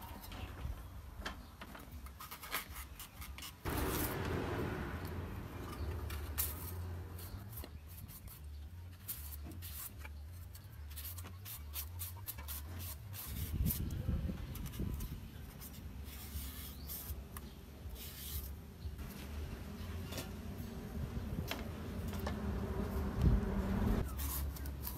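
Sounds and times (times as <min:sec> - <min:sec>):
vegetable peeler scraping: 0:02.1 - 0:04.2, 0:05.8 - 0:18.6, 0:24.0 - 0:24.9
low background hum: 0:17.2 - 0:24.9.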